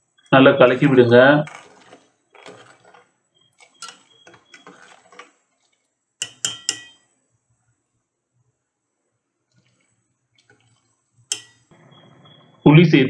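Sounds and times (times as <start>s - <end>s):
metal ladle stirring in pot: 0.1s - 7.2s, 9.5s - 11.7s
ladle knocking against pot: 6.2s - 7.0s, 11.3s - 11.6s.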